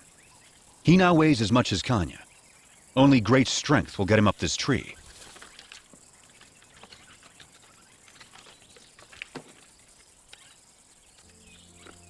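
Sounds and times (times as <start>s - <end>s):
claws scratching tree bark: 5.0s - 9.8s.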